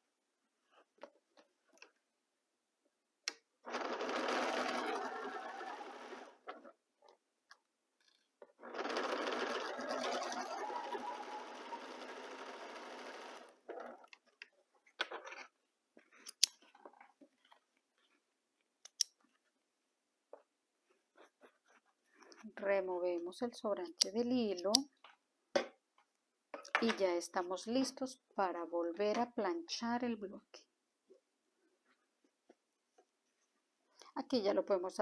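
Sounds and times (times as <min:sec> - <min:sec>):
sewing machine stitching: 0:03.7 - 0:06.8, 0:08.5 - 0:14.1.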